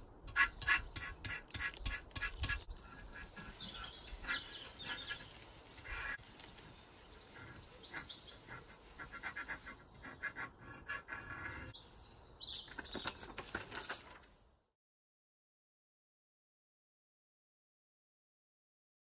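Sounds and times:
small birds chirping: 0.0s - 14.6s.

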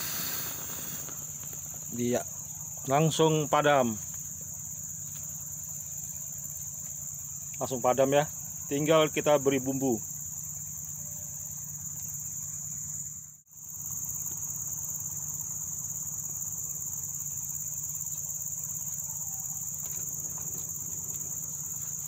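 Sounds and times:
high-pitched insect chorus: 0.0s - 22.0s.

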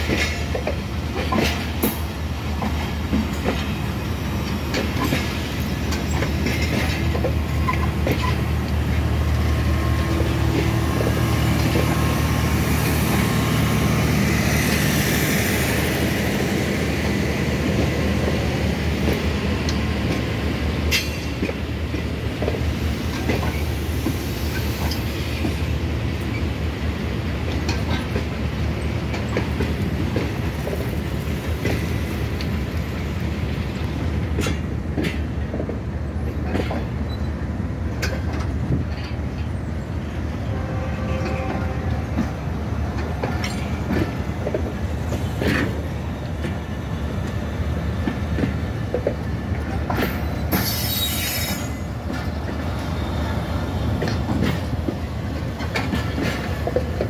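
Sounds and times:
clicks over rail joints: 0.0s - 12.1s, 33.8s - 37.0s, 41.2s - 50.8s, 51.5s - 57.0s
train wheels rumbling on rail: 0.0s - 57.0s
faint wheel squeals: 50.5s - 51.8s.

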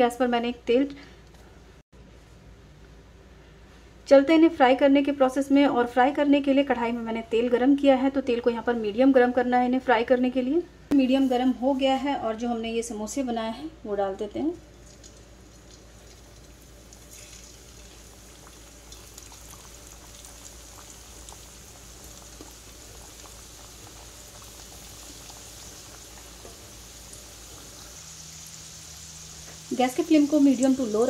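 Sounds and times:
food sizzling in oil: 14.8s - 31.0s.

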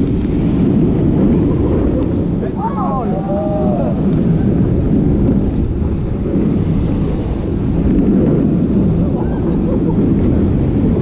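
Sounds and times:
roller coaster rumbling on steel track: 0.0s - 11.0s
wind buffeting microphone: 0.0s - 11.0s
riders screaming: 2.5s - 4.1s.

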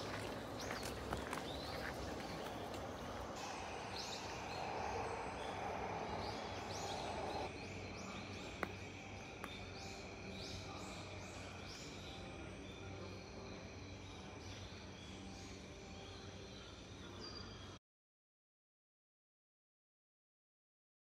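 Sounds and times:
high insect drone: 0.0s - 17.2s
rushing noise: 3.2s - 7.5s.

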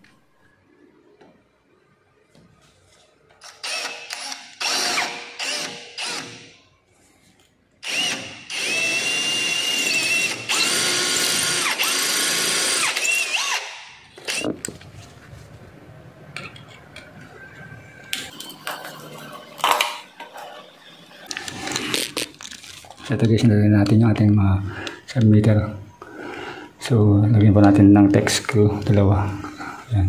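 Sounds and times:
power drill drilling into wall: 3.4s - 6.5s, 7.8s - 14.5s.

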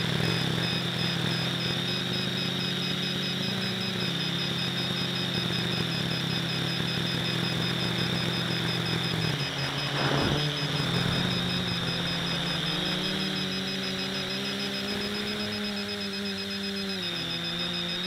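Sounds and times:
drone motors humming with whine: 0.0s - 18.0s
short rush of noise: 9.3s - 13.3s.

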